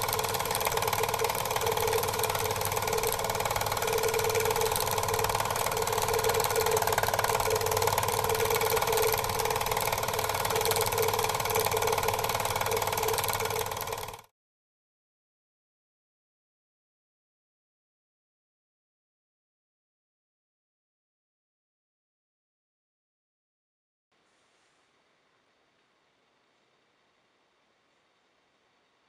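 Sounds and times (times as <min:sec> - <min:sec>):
film projector clatter: 0:00.0 - 0:14.3.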